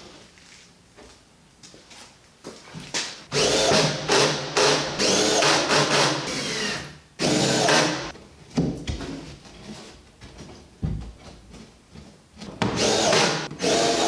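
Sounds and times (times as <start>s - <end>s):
cordless drill whining: 12.8s - 14.0s.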